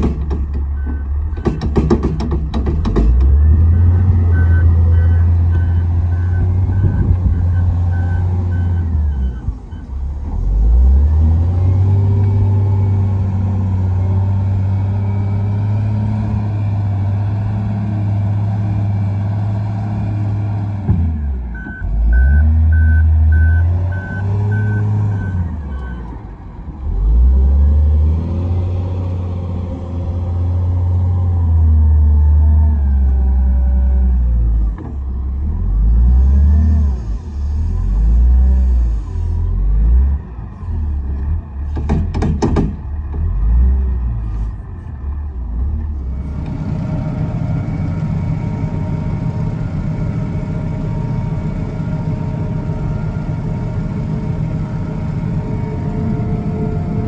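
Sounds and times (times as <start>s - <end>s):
diesel engine working under load: 0.0s - 57.0s
reversing alarm beeping: 3.5s - 9.9s, 21.6s - 26.1s.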